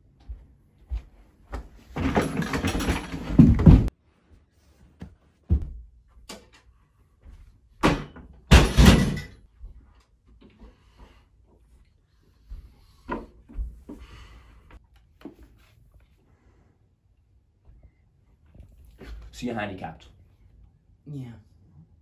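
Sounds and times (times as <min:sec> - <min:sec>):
chair scraping: 0:01.9 - 0:03.9
wooden chair knocks and thuds: 0:02.0 - 0:03.9.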